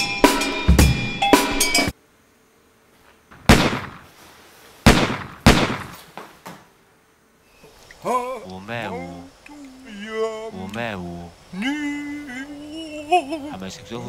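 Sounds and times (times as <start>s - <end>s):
drum kit music: 0.0s - 1.9s
sharp loud bangs: 3.4s - 4.1s, 4.8s - 6.0s.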